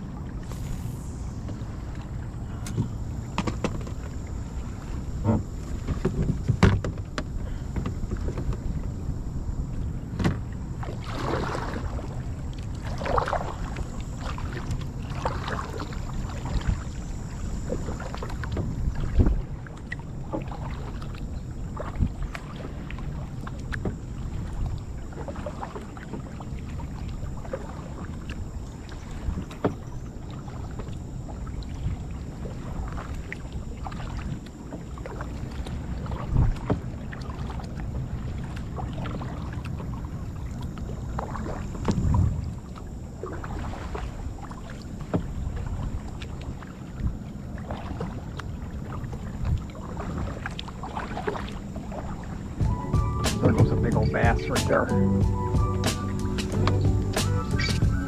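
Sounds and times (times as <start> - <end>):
wind rumble on microphone: 0.0 - 25.6, 35.4 - 44.4
kayak paddle strokes in water: 0.0 - 58.0.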